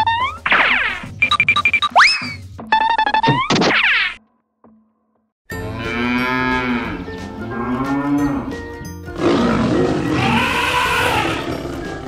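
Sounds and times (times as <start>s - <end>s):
background music: 5.5s - 12.0s
moo-like animal calls: 9.2s - 12.0s.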